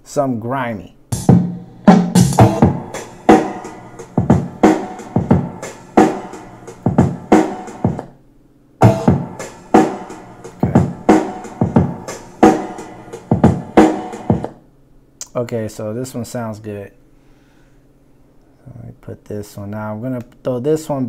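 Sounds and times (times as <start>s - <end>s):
hip-hop drum loop: 1.1s - 8.1s, 8.8s - 14.6s.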